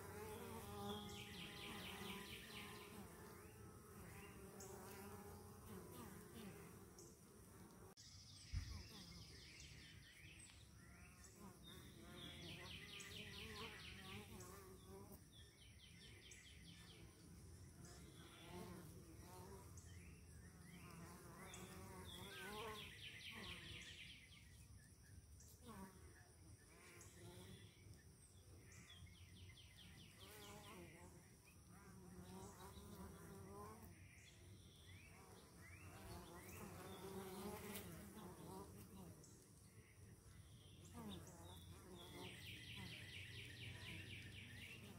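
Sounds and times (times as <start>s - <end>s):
bees buzzing: 0.0s - 8.0s, 35.1s - 39.2s.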